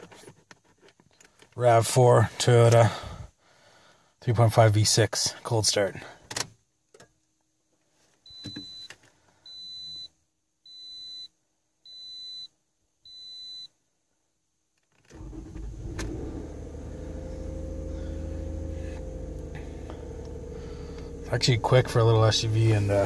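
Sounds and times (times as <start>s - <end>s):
dashboard warning chime beeps: 8.3s - 8.9s, 9.5s - 10.1s, 10.7s - 11.3s, 11.9s - 12.5s, 13.1s - 13.7s
car engine starting and idling: 15.0s - 23.0s.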